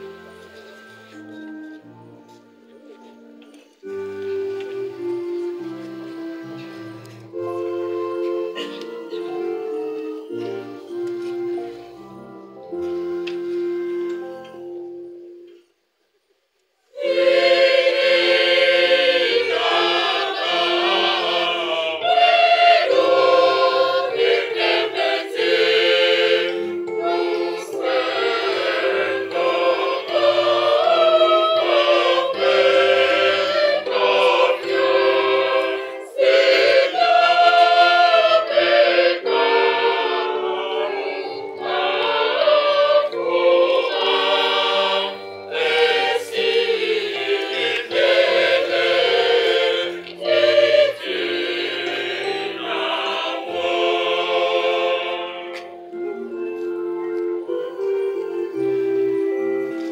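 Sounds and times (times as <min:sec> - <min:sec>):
mixed choir singing: 0:00.0 - 0:01.2, 0:16.9 - 0:56.7, 0:57.4 - 0:59.9.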